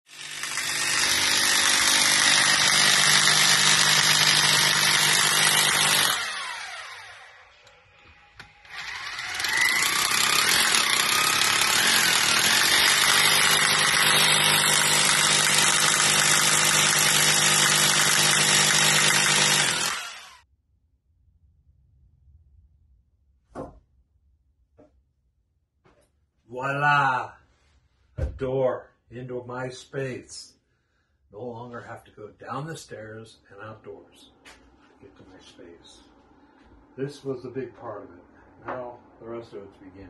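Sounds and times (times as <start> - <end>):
rotary hammer drill into concrete: 0.1 - 7.5, 8.4 - 20.4.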